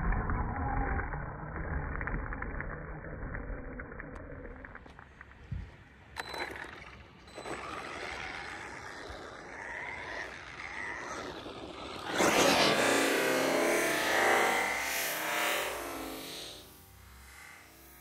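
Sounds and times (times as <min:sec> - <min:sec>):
electric motor whining: 0:06.4 - 0:18.0.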